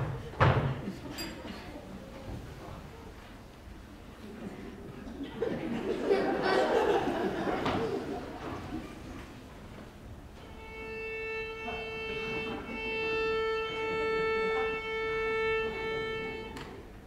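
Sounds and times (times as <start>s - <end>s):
violin bowed note: 10.4s - 17.0s.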